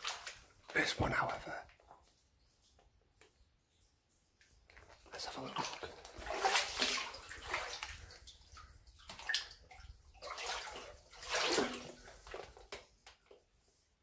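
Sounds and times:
water sloshing from wading: 0:00.0 - 0:00.8, 0:04.8 - 0:13.4.

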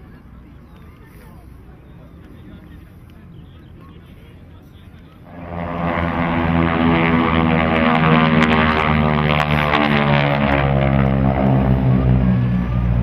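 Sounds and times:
propeller aircraft engines droning: 0:00.0 - 0:13.0.

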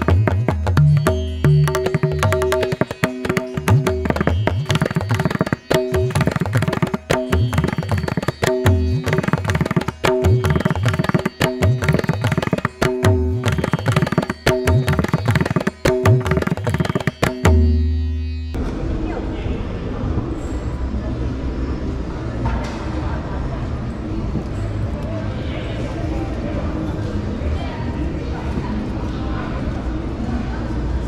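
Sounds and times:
fast percussion music: 0:00.0 - 0:18.4.

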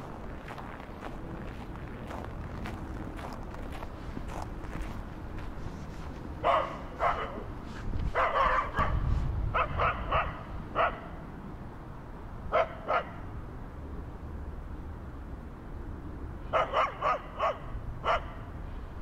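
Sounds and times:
dog barking: 0:06.4 - 0:07.5, 0:08.1 - 0:11.2, 0:12.5 - 0:13.2, 0:16.5 - 0:18.5.

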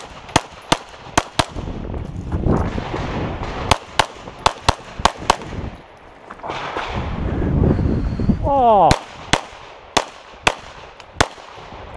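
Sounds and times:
rapid pistol fire: 0:02.8 - 0:05.6, 0:08.9 - 0:11.6.

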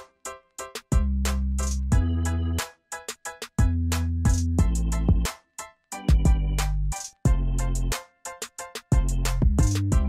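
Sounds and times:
deep bass line: 0:01.0 - 0:02.6, 0:03.6 - 0:05.3, 0:06.1 - 0:07.9, 0:09.0 - 0:10.0.

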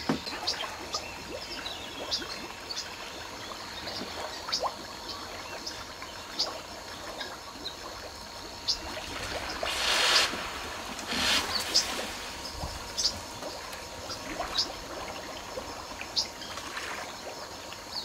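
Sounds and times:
river water trickling and lapping: 0:00.0 - 0:18.0
rushing noise: 0:09.5 - 0:13.0.

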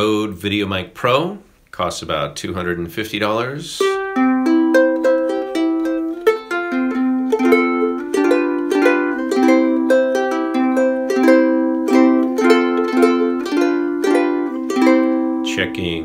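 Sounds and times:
ukulele picked melody: 0:03.8 - 0:16.0.

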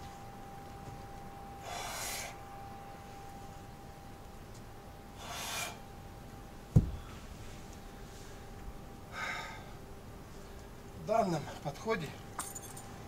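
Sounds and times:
hard breathing: 0:01.6 - 0:02.4, 0:05.2 - 0:05.9, 0:09.1 - 0:10.7
kettlebell thud on grass: 0:06.7 - 0:07.1.

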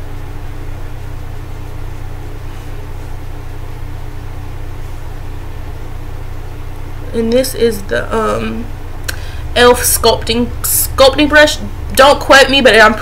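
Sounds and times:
low hum: 0:00.0 - 0:13.0.

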